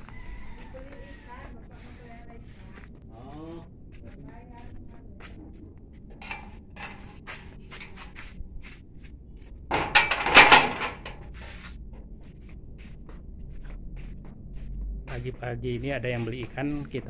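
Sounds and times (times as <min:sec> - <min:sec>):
metal gate knocks and clicks: 0:06.2 - 0:08.0, 0:09.7 - 0:11.3
gate clanking rattle: 0:06.2 - 0:08.2, 0:09.7 - 0:11.4.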